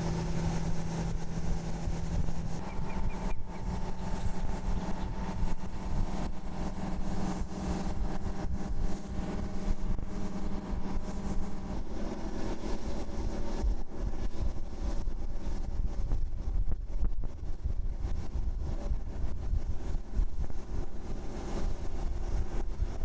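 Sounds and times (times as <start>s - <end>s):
tractor engine running: 0.0s - 15.9s
low rumble: 0.0s - 23.0s.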